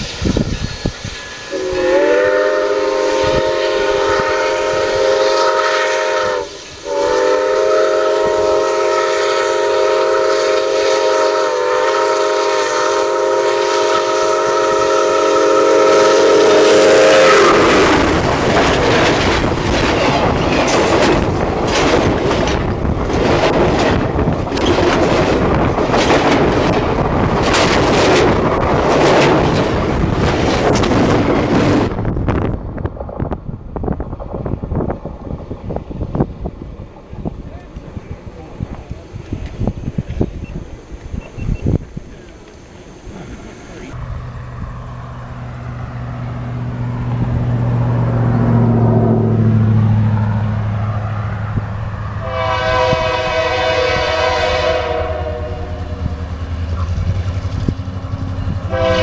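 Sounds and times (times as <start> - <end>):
train wheels and running gear rushing: 0.0 - 59.0
steam locomotive chime whistle: 0.6 - 17.9, 52.2 - 56.1, 58.4 - 59.0.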